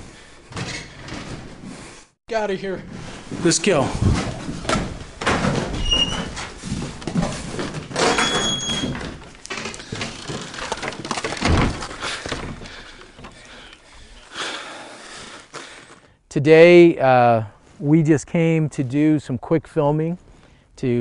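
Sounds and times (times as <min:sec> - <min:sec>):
hurried footsteps on wooden floor: 0:02.8 - 0:14.4
brief high squeaks: 0:08.0 - 0:09.0.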